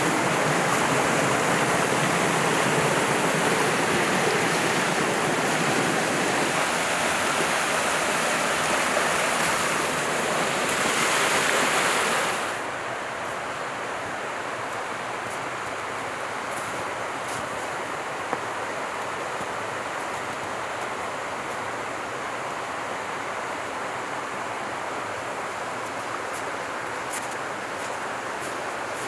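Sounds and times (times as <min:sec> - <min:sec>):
stream rushing over cascades: 0:00.0 - 0:29.0.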